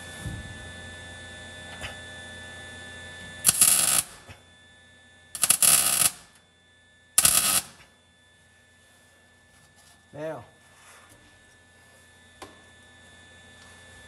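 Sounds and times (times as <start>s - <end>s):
crackling tack welds: 3.4s - 4.4s, 5.4s - 6.4s, 7.2s - 7.9s.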